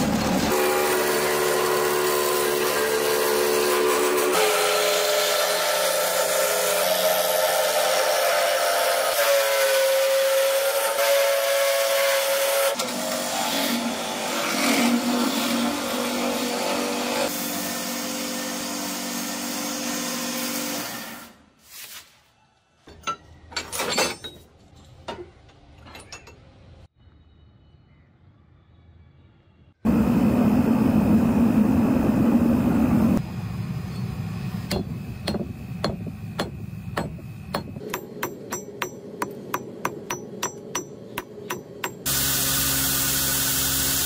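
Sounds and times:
gouge cutting spinning wood: 0.5 - 12.6, 34.7 - 44.0
wood lathe steady tone: 0.5 - 12.7.

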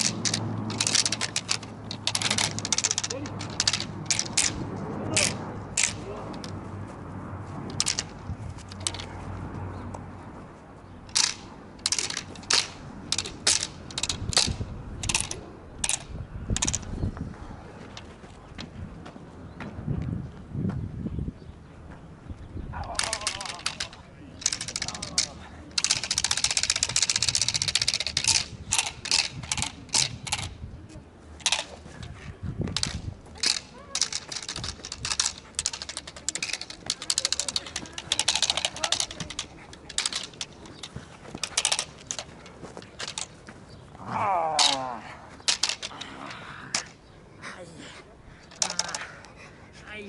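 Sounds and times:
training stick rattling: 0.0 - 6.6, 7.6 - 9.2, 11.0 - 17.0, 22.8 - 30.6, 31.4 - 47.0, 48.4 - 49.4.

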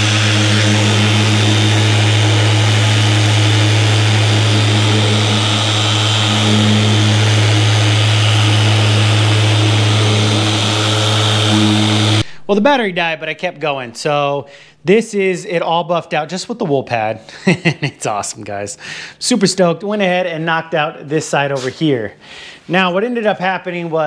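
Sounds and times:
buffer motor hum: 0.0 - 12.6.

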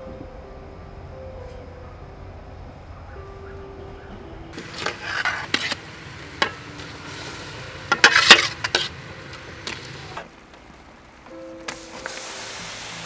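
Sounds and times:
metal spoon scraping a pot: 4.6 - 10.2
sizzling in a wok: 4.6 - 10.2, 11.7 - 13.0.

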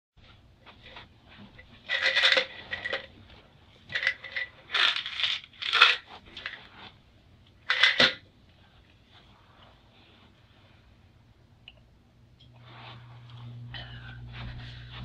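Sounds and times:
pills rattling in plastic bottle: 1.9 - 3.1, 3.9 - 6.6.

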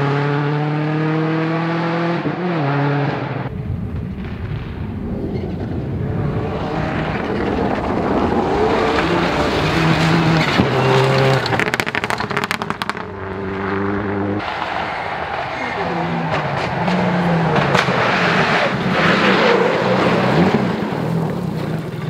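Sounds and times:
rally car engine at high revs: 0.0 - 3.5, 6.1 - 14.5, 15.7 - 21.5
engine crackles and pops: 3.5 - 13.4, 16.3 - 19.1, 20.0 - 22.0.

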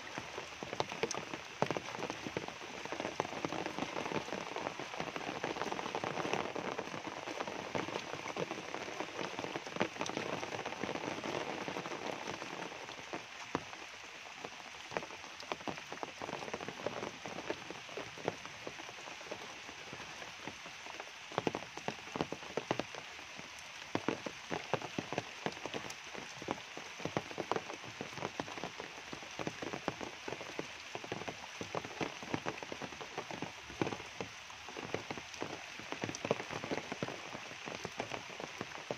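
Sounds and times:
rain on foliage: 0.0 - 38.9
raindrops striking umbrella: 0.0 - 38.9.

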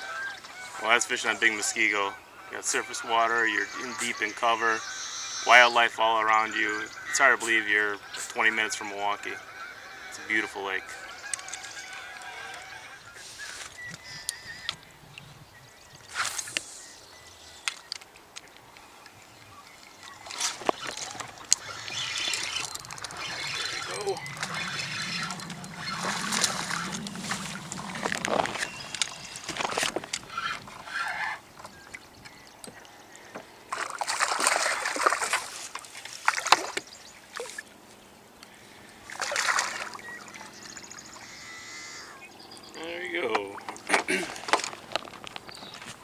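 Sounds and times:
water sloshing: 20.0 - 32.1, 33.7 - 37.8, 39.0 - 41.2.

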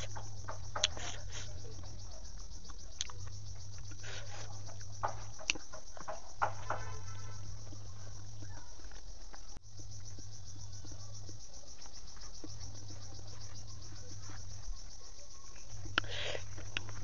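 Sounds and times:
chewing clicks: 0.0 - 6.2, 15.5 - 17.0
insects trilling: 0.0 - 17.0.

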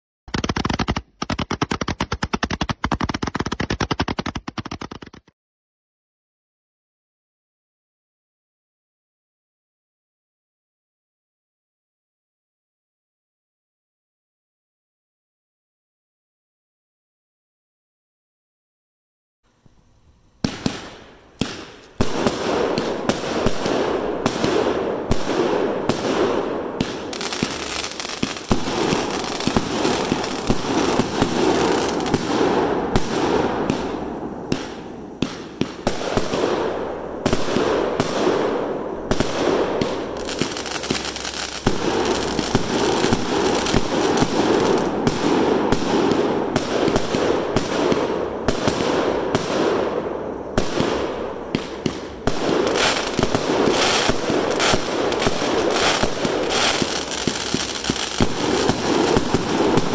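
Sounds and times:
firework hissing: 19.8 - 59.9
firework launch thumps and cracks: 20.4 - 38.5, 50.6 - 59.9.

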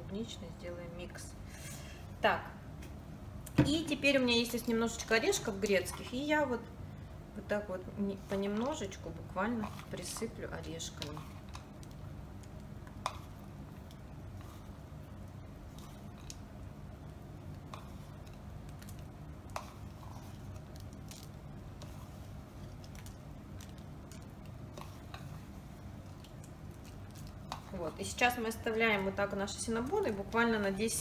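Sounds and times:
low room hum: 0.0 - 31.0
walnuts clicking and rustling: 15.8 - 28.0.

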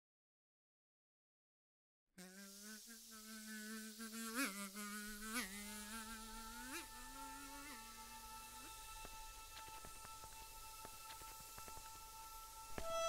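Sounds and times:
fly buzzing: 2.2 - 13.0
faint steady high tone: 6.1 - 13.0.

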